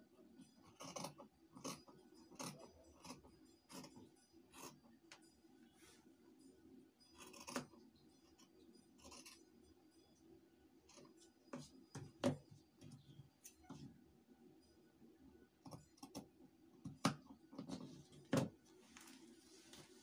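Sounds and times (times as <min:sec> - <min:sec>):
scissors snipping fabric: 0:00.7 - 0:03.9, 0:07.2 - 0:07.7.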